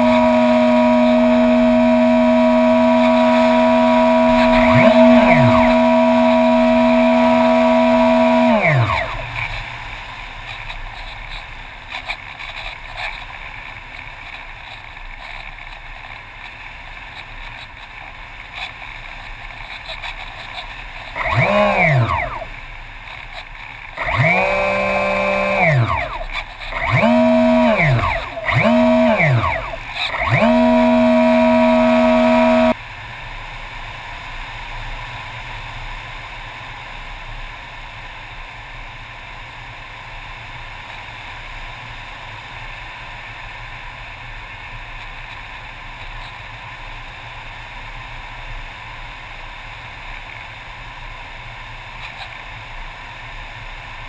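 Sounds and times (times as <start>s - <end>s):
model airplane motor: 0.0s - 14.0s, 17.5s - 32.8s.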